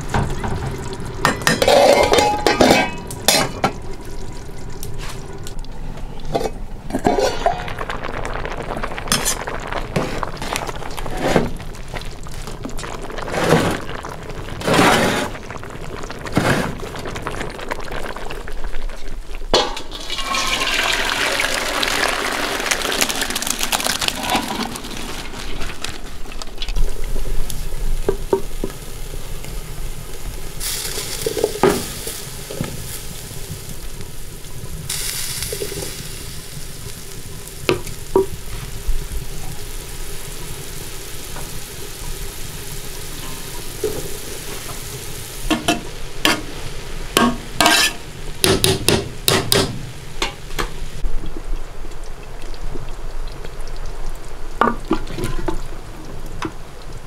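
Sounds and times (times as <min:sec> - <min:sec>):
water sloshing and pouring: 0:00.0 - 0:26.9
broth simmering hiss: 0:00.0 - 0:57.0.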